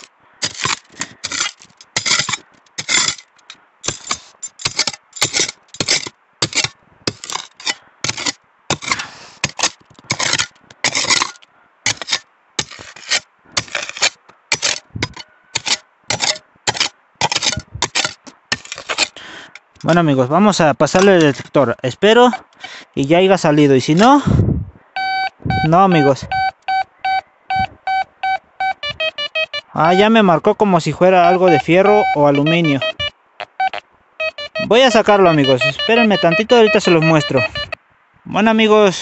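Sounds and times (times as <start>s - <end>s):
stones grating against blade: 0.0s - 20.0s
digging tool chopping stony soil: 0.0s - 20.1s, 20.9s - 21.6s, 31.2s - 33.1s, 34.5s - 37.6s.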